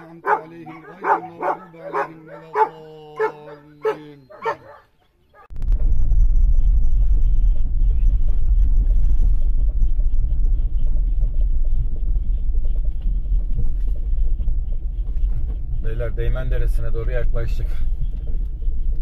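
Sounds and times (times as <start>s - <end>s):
vehicle driving on dirt track: 5.5s - 19.0s.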